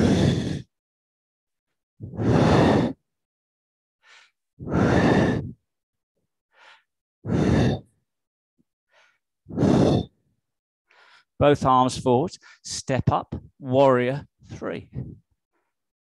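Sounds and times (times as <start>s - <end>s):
man breathing into microphone: 0.0s - 0.7s, 2.0s - 3.0s, 4.0s - 5.6s, 6.6s - 7.9s, 8.9s - 10.2s.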